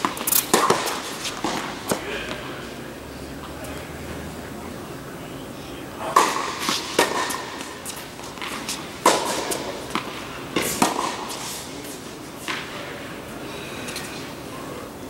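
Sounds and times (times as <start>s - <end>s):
tennis ball bouncing on hard court: 0.0s - 2.0s, 6.1s - 11.5s
tennis ball hit by rackets: 0.0s - 2.4s, 6.0s - 11.6s.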